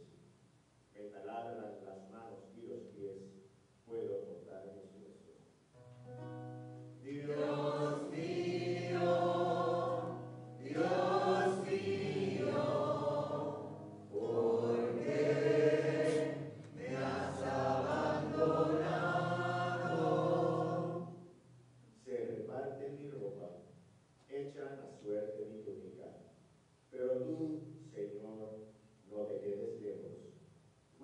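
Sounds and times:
choir singing: 0:07.0 - 0:21.2.

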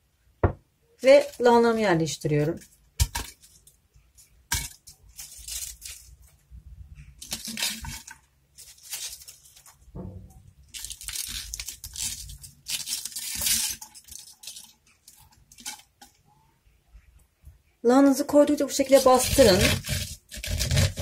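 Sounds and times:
cabbage rustling and crunching: 0:02.4 - 0:06.4, 0:07.1 - 0:09.9, 0:10.7 - 0:15.9, 0:18.7 - 0:21.0.

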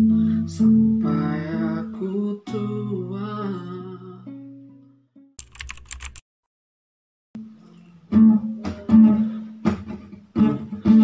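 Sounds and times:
classical guitar strumming: 0:07.4 - 0:11.0.

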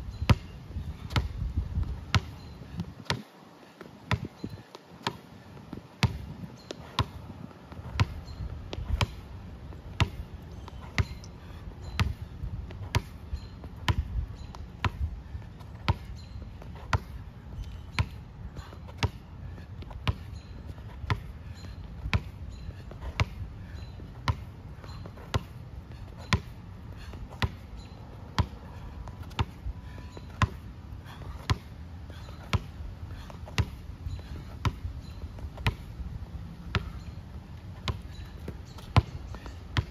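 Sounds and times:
basketball bouncing on asphalt: 0:00.1 - 0:39.9.

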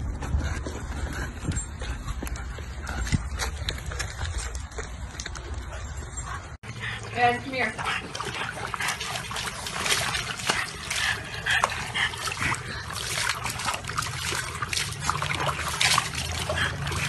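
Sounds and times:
water sloshing in plastic tub: 0:06.7 - 0:17.0
water spattering onto concrete: 0:12.2 - 0:17.0.

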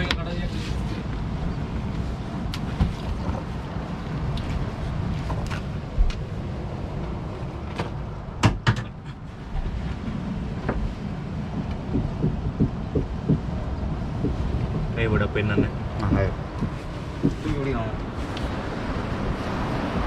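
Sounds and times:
wind buffeting microphone: 0:09.4 - 0:20.0.

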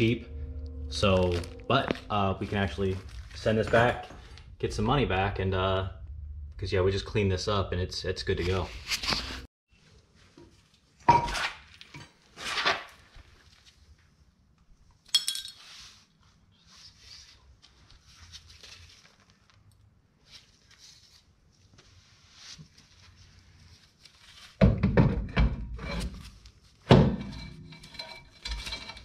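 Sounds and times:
metal parts scraping and clicking: 0:27.4 - 0:29.0.

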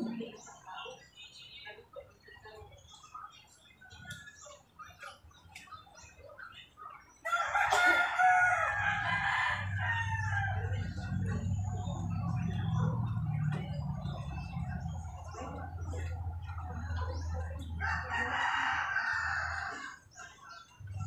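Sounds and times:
rooster crowing: 0:07.2 - 0:11.4, 0:17.8 - 0:20.0.

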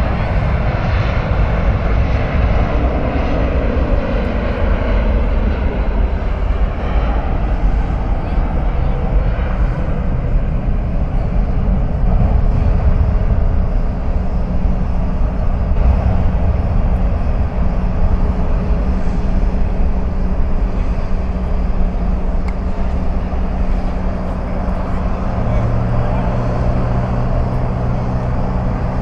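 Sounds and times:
jet engines roaring: 0:00.0 - 0:29.0
steady low hum: 0:00.0 - 0:29.0.

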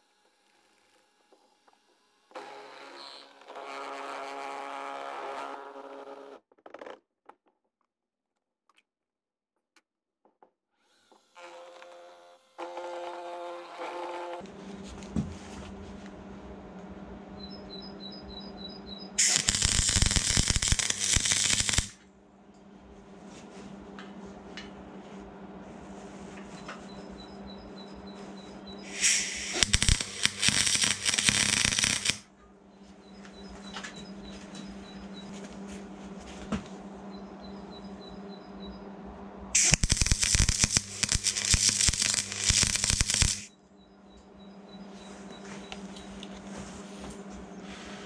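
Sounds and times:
welder hum: 0:00.0 - 0:06.3, 0:19.2 - 0:22.0, 0:28.8 - 0:32.2, 0:39.6 - 0:43.5
welding arc crackling: 0:19.2 - 0:22.0, 0:28.9 - 0:32.2, 0:39.6 - 0:43.5.

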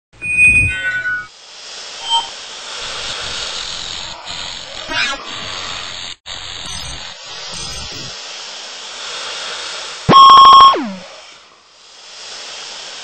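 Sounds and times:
loud electronic beep: 0:00.1 - 0:01.3, 0:02.0 - 0:02.3, 0:06.6 - 0:08.1, 0:10.1 - 0:11.0
steady hiss: 0:01.3 - 0:04.8, 0:05.4 - 0:10.1, 0:10.7 - 0:13.0.

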